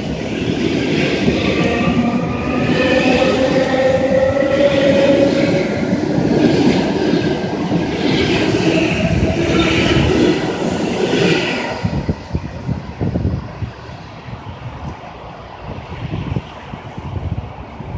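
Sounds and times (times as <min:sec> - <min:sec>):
train motor hum: 0:00.0 - 0:12.6.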